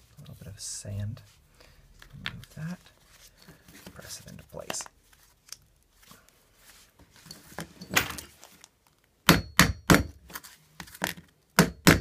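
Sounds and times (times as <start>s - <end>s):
sharp knocks on plastic hub: 9.3s - 10.2s, 11.6s - 12.0s.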